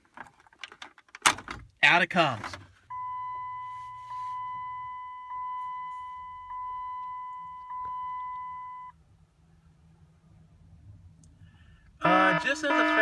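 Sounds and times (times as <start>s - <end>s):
car warning chime: 2.9s - 9.0s, 12.0s - 13.0s.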